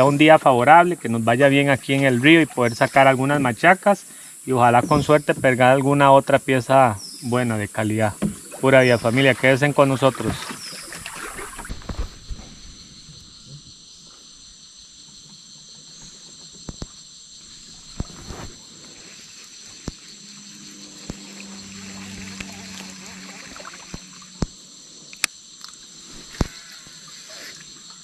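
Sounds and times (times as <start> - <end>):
insects chorus: 0.0 - 28.0.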